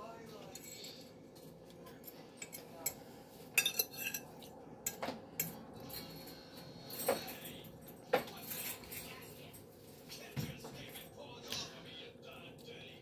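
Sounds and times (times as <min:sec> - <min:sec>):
metal fork clinking on a plate: 0:01.9 - 0:03.0, 0:03.6 - 0:06.4.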